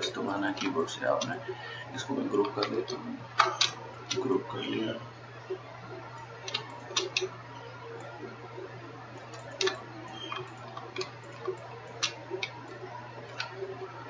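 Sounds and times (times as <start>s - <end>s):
computer mouse clicks: 2.4s - 4.3s, 6.4s - 7.3s, 9.2s - 13.8s.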